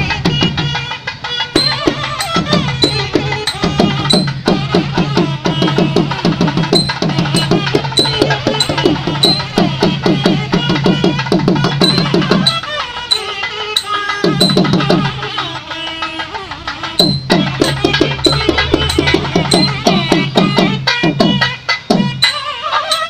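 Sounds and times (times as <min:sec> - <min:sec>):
drums in fast rolls: 0:00.0 - 0:13.1, 0:14.2 - 0:22.3
sharp high accent beat: 0:00.0 - 0:16.1, 0:16.7 - 0:23.0.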